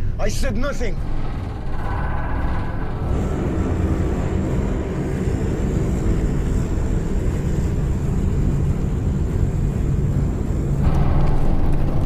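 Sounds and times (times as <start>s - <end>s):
propeller plane engines droning: 0.0s - 12.0s.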